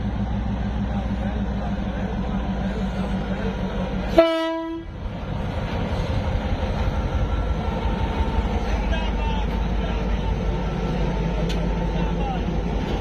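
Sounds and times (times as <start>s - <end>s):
diesel locomotive rumbling: 0.0s - 13.0s
train horn blast: 4.1s - 4.9s.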